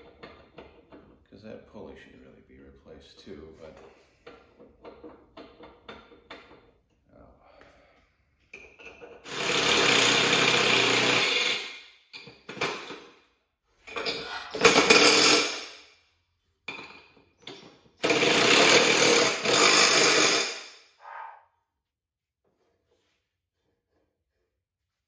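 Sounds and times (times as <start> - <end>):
impact driver running: 9.3 - 11.7, 14.6 - 15.7, 18.0 - 20.6.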